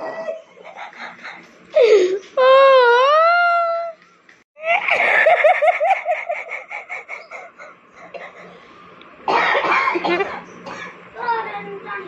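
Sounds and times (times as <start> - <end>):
person laughing: 4.6 - 8.5.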